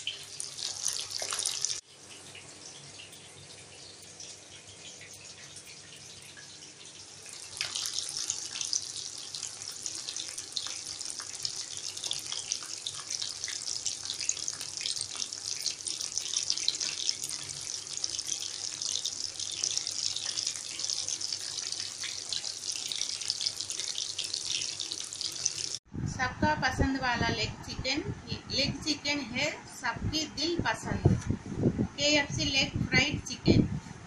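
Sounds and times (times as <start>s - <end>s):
chicken deep-frying in oil: 0.0s - 25.8s.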